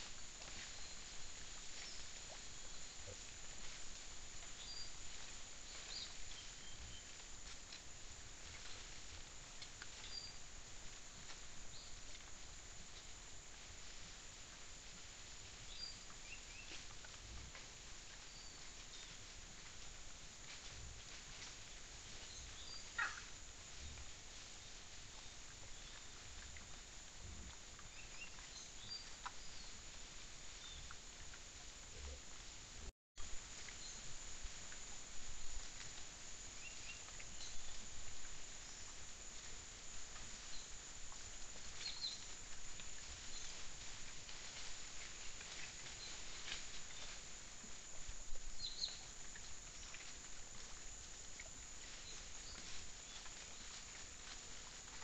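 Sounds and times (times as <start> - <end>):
rustling in dry leaves: 0.0 - 55.0
faint bird chirps: 22.3 - 23.3
animals rustling through dry leaves: 40.2 - 48.3, 50.1 - 55.0.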